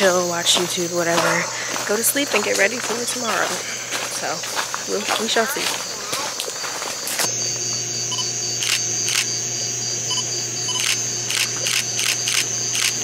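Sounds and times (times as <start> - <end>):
high-pitched insect drone: 0.0 - 13.0
camera shutter clicks: 10.7 - 13.0.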